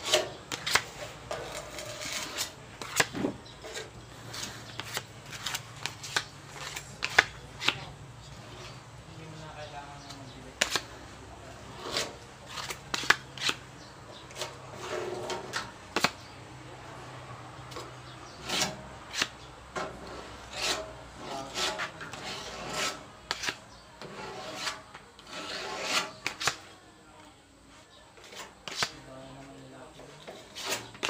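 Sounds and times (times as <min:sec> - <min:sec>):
filler spreader scraping panel: 0:00.0 - 0:07.2, 0:11.7 - 0:13.6, 0:14.3 - 0:16.1, 0:18.3 - 0:26.6, 0:30.1 - 0:31.0.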